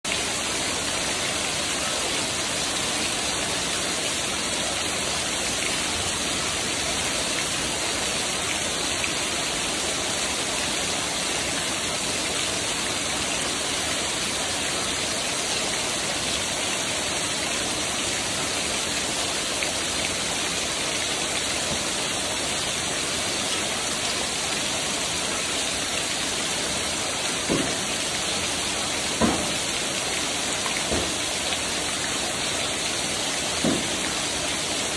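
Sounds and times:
heavy rain on pavement: 0.0 - 34.9
water pouring off eaves: 0.1 - 34.9
loud knocks: 27.5 - 27.9, 29.2 - 29.6, 33.6 - 34.0.

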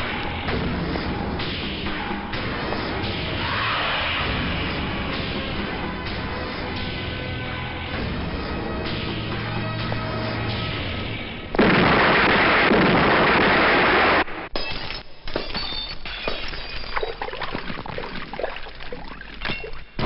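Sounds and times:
explosion roar: 11.6 - 14.4.

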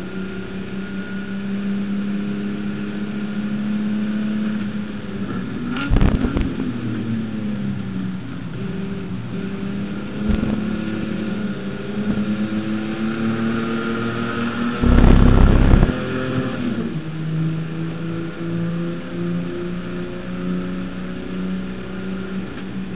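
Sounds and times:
race car engine running: 9.0 - 13.2, 14.0 - 17.2
loud rumble: 14.8 - 16.2.

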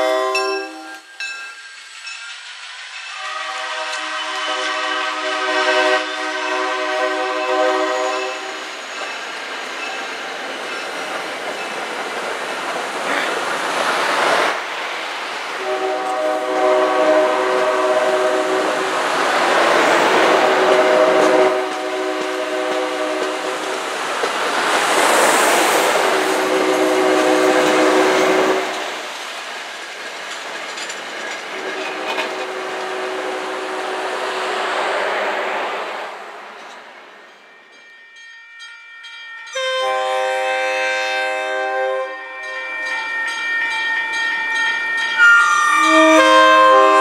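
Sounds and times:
train air horn blasts: 0.0 - 1.0, 3.2 - 8.7, 15.6 - 19.0, 20.3 - 23.6, 26.0 - 28.8, 31.6 - 34.7, 39.6 - 42.7, 45.2 - 47.0.

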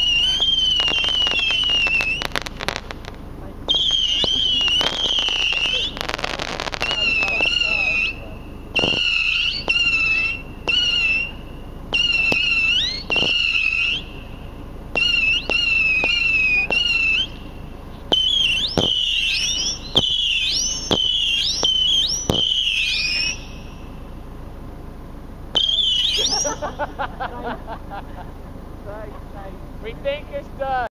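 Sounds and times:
firework launch pops: 0.0 - 24.4, 25.5 - 27.0
high firework whistles: 0.0 - 28.5.

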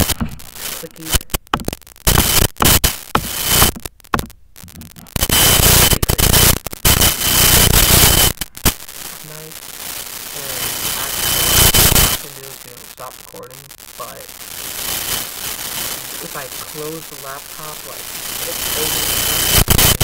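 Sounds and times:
sharp clicks: 0.0 - 8.8
crackling handling noise on microphone: 0.0 - 20.0.

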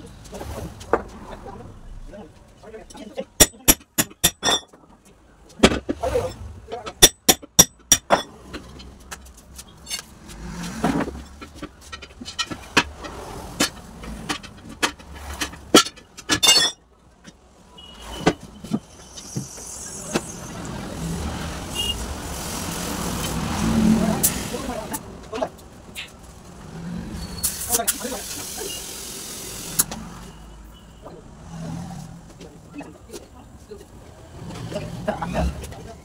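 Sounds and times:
vehicle passing: 8.3 - 15.7, 19.5 - 27.7, 28.9 - 36.0.

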